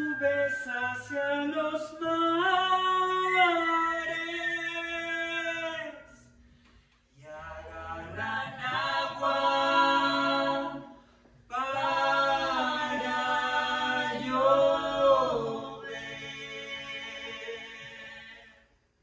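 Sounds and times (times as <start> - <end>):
unaccompanied singing: 7.2 - 18.6.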